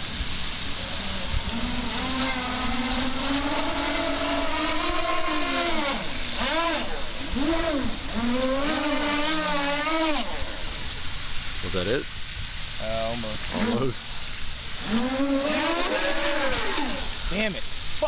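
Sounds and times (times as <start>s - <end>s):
electric boat motors whining: 0.9s - 10.8s, 14.8s - 17.2s.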